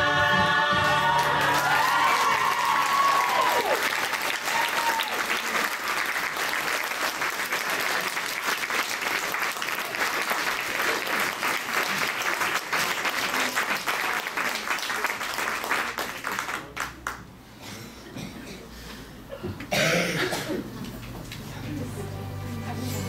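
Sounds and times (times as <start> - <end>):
crowd clapping: 0.7 - 17.4.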